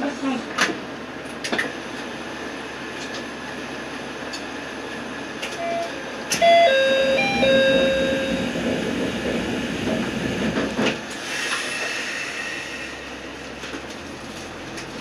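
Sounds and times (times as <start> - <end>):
railcar rumble: 0.0 - 15.0
electronic chime tune: 5.6 - 8.5.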